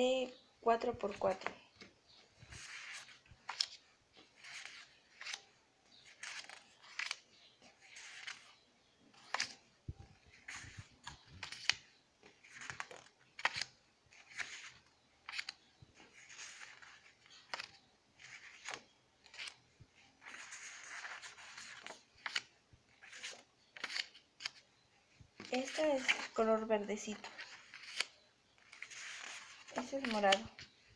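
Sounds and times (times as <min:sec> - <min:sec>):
cardstock sheets laid on pile: 0:25.4 - 0:30.8.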